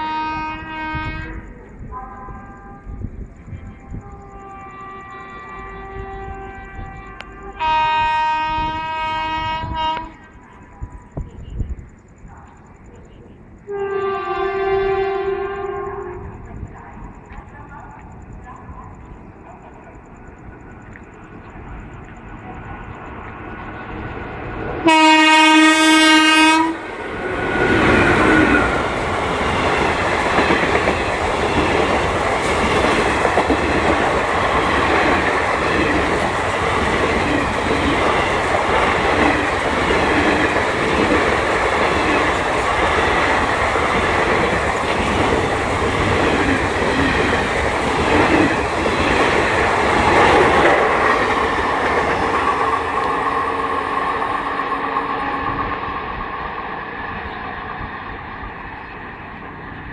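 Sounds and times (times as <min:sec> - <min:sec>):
train horn blast: 0:00.0 - 0:03.0, 0:03.7 - 0:10.4, 0:13.7 - 0:16.4, 0:24.8 - 0:29.0, 0:53.0 - 0:55.9.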